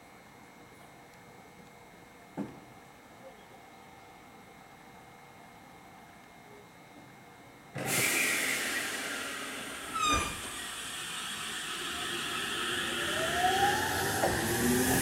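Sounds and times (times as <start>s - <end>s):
loud hiss of air: 7.8s - 15.0s
traction motor whine: 8.8s - 15.0s.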